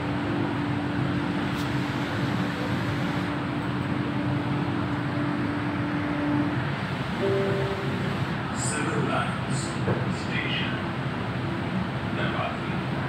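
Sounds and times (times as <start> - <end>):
steady hum: 0.0 - 11.4
metro train rumble: 0.0 - 13.0.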